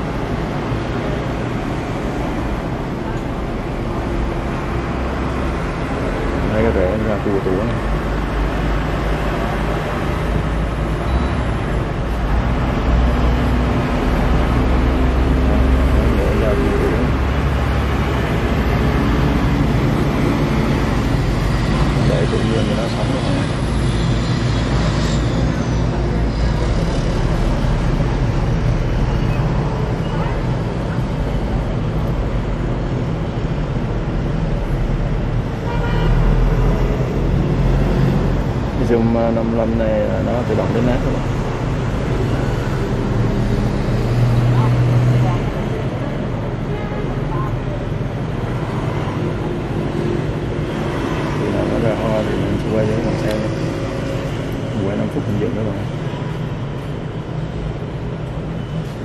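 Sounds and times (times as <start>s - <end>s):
road traffic hum: 0.0s - 59.0s
car horn toot: 35.7s - 36.2s.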